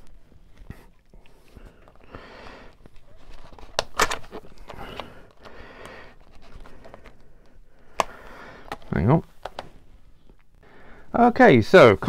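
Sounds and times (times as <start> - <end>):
person breathing heavily: 0.6 - 2.9, 4.4 - 8.9, 10.2 - 11.2.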